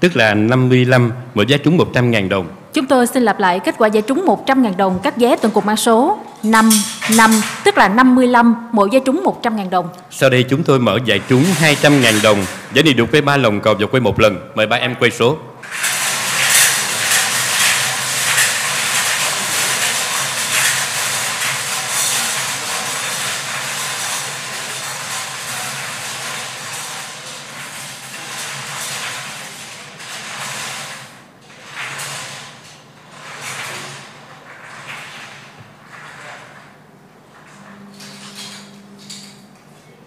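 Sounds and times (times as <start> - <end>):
balls rattling in wire-cage drums: 5.2 - 7.7, 11.1 - 12.8, 15.6 - 36.8.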